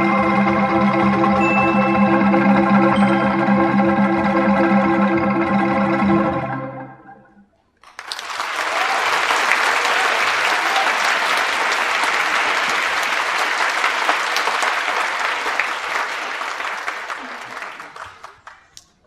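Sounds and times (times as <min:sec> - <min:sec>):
ensemble final chord: 0:00.0 - 0:07.4
audience applause: 0:07.8 - 0:19.0.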